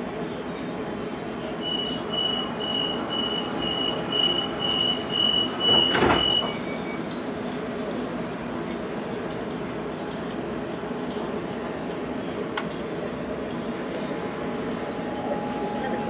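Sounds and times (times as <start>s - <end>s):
train humming: 0.0s - 16.0s
high repeating beep: 1.6s - 6.7s
short lower beep: 1.6s - 7.0s
train doors shutting thud: 4.8s - 6.6s.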